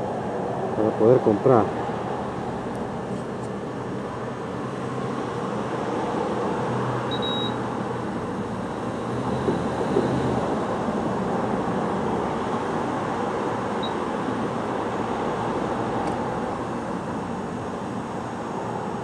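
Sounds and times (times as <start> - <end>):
traffic and street noise: 0.0 - 19.0
fuel pump beep: 7.1 - 7.6, 13.8 - 14.1.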